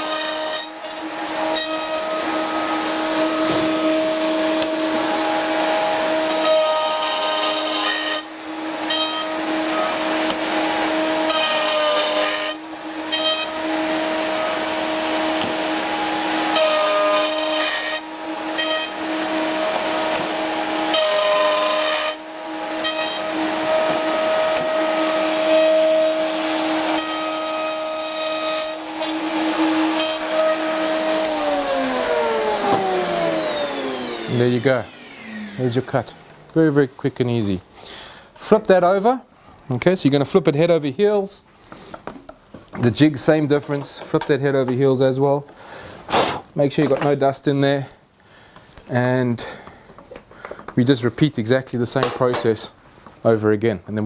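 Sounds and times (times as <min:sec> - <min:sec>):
dust extractor running: 0:00.0 - 0:36.6
saw motor winding down: 0:00.0 - 0:36.6
circular saw cutting wood: 0:00.0 - 0:37.5.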